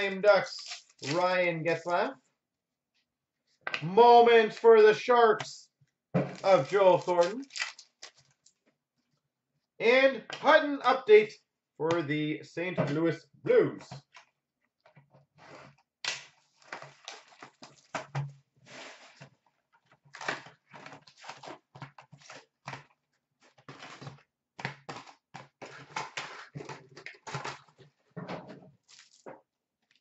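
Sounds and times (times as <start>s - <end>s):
packs rustling and crinkling: 6.2s - 8.6s.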